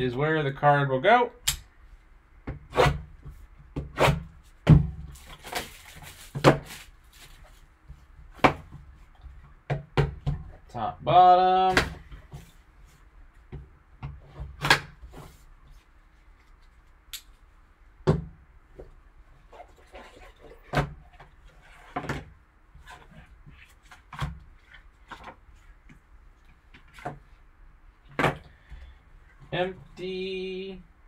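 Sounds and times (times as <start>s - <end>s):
soft rustling and scraping: 4.4s - 9.6s, 12.0s - 13.5s, 15.0s - 17.5s, 18.7s - 27.5s.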